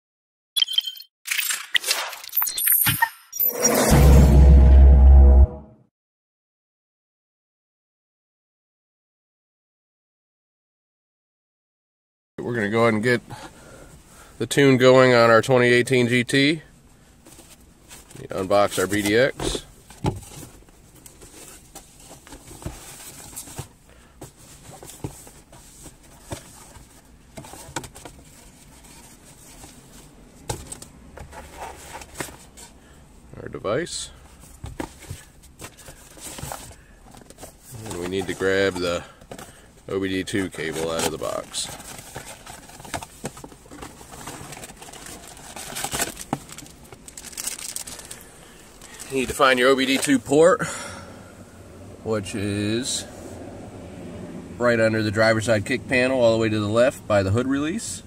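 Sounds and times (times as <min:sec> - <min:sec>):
cardboard and plastic bag rustling: 0:34.3 - 0:50.4.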